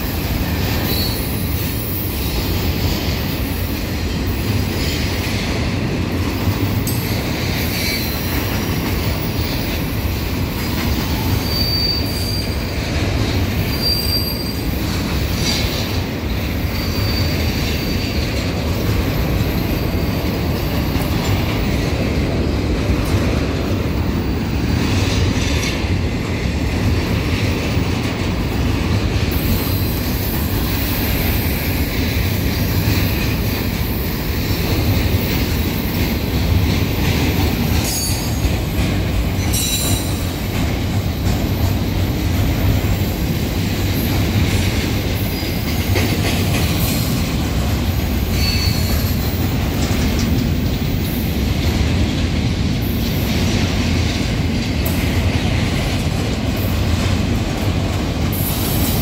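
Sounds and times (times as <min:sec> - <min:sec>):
train wheels rumbling on rail: 0:00.0 - 0:59.0
high-pitched wheel squeals: 0:11.2 - 0:12.8, 0:13.6 - 0:14.8, 0:16.6 - 0:18.2, 0:48.3 - 0:49.4.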